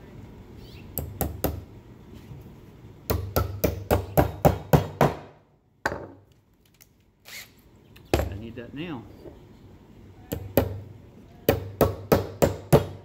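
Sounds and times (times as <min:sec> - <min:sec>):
hammer driving a nail into wood: 0:03.1 - 0:06.0, 0:11.5 - 0:13.0.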